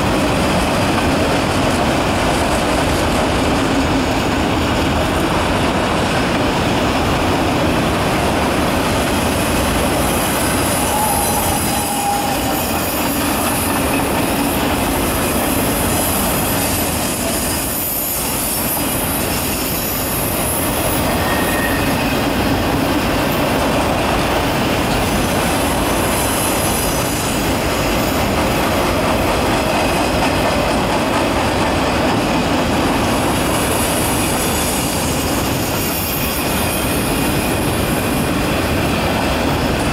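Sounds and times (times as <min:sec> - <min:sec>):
train wheels rolling on rail: 0:00.0 - 0:39.9
wheel squeal: 0:10.7 - 0:14.1, 0:17.4 - 0:22.3.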